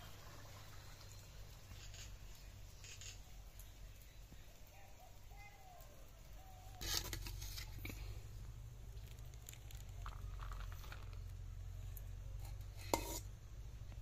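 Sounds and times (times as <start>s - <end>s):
ladle scraping rice: 6.8s - 8.2s, 12.4s - 13.3s
steady low hum: 7.1s - 14.0s.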